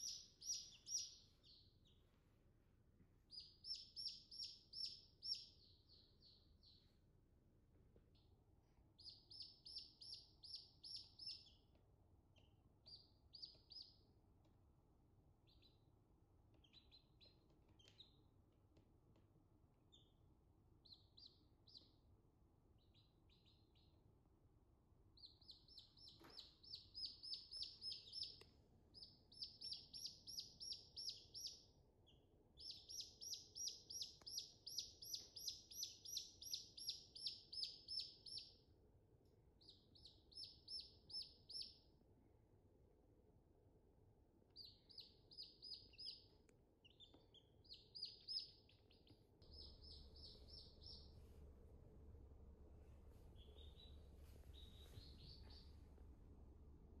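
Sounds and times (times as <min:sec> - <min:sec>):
chicks peeping: 0:00.0 - 0:02.0, 0:03.3 - 0:06.8, 0:09.0 - 0:11.6, 0:12.3 - 0:14.0, 0:15.4 - 0:15.8, 0:16.5 - 0:18.2, 0:20.8 - 0:22.0, 0:22.8 - 0:23.9, 0:25.2 - 0:38.5, 0:39.6 - 0:41.8, 0:44.6 - 0:51.3, 0:53.3 - 0:55.8.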